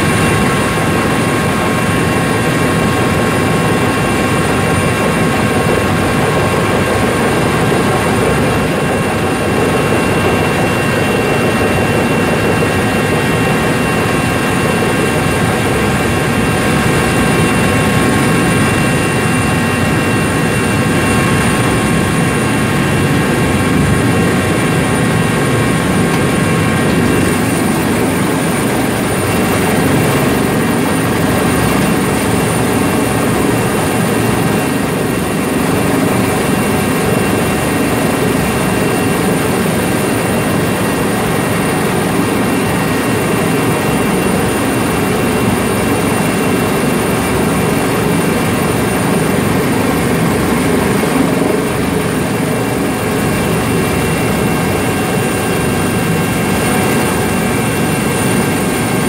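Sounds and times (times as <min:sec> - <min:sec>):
helicopter engine and rotor running: 0:00.0 - 0:59.0.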